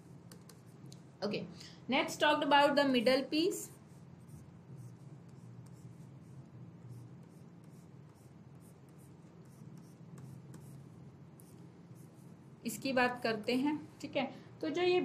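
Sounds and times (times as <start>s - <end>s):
stylus scratching on tablet: 0.0s - 0.9s, 3.0s - 13.0s
faint low hum: 0.0s - 15.0s.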